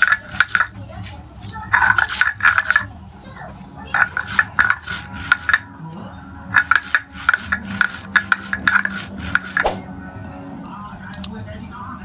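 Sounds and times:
stone scraping on stone: 0.0s - 2.9s, 4.0s - 5.7s, 6.5s - 9.8s.

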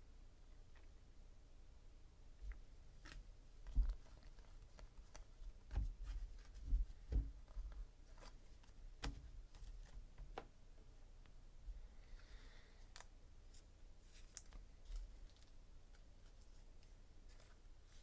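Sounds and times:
dull thumps: 3.7s - 4.2s, 5.6s - 7.8s.

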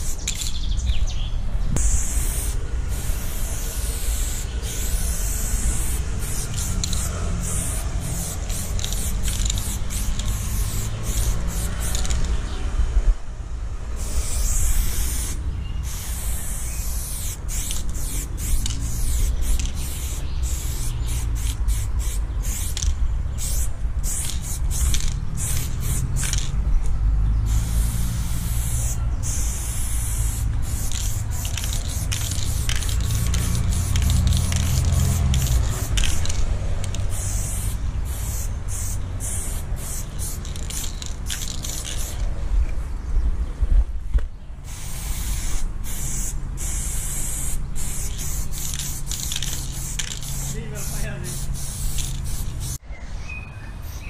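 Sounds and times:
spray paint can hissing: 0.0s - 0.8s, 1.8s - 12.4s, 14.0s - 26.6s, 27.5s - 42.3s, 44.6s - 52.8s
steady low rumble: 0.0s - 41.4s.

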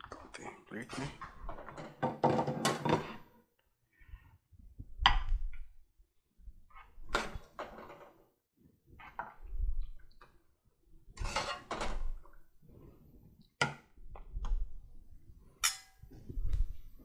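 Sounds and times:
metal spoon scraping pot: 11.2s - 11.8s.

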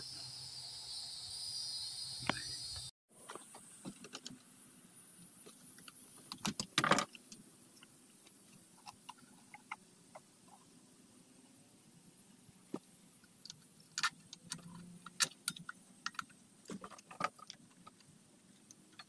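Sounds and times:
steady background hiss: 0.0s - 19.0s
hands handling plastic and metal parts: 13.2s - 19.0s.

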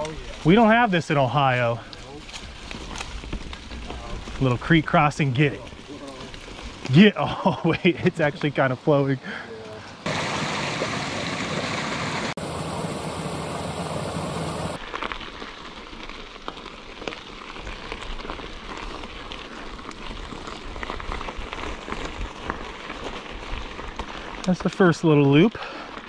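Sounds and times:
creek water rushing: 9.9s - 14.8s.

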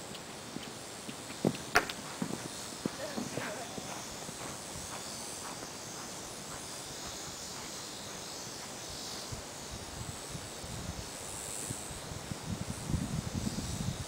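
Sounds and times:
hoofbeats on sand: 0.0s - 10.2s
high insect chirring: 0.0s - 14.0s.

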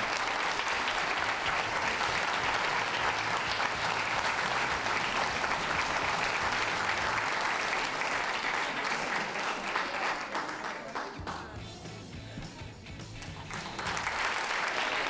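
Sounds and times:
audience applauding: 0.0s - 11.8s, 13.0s - 15.0s.

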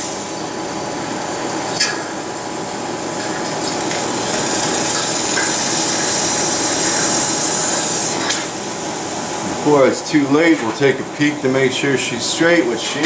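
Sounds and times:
hot steel hissing in water: 3.0s - 13.0s.

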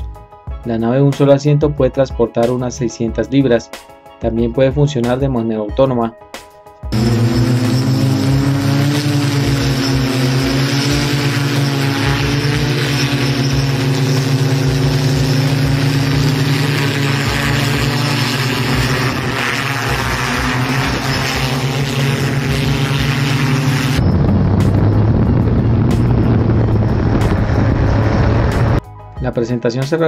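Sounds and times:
electric propellers droning: 6.9s - 28.8s.

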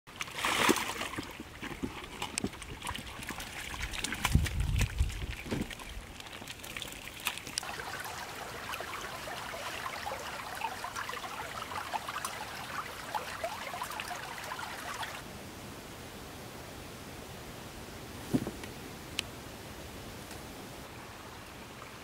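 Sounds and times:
shallow water trickling: 0.1s - 15.2s
soft thuds: 18.2s - 18.7s.

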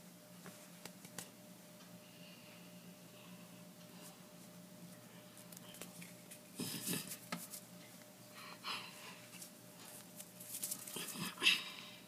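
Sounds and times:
faint steady hum: 0.0s - 12.0s
hands swishing and brushing: 9.4s - 11.0s.

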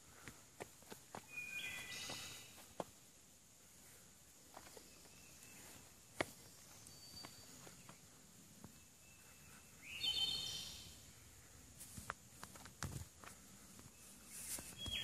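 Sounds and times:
footsteps on a log: 0.1s - 3.0s, 4.4s - 8.0s
bird call sweeping upward: 9.9s - 10.8s.

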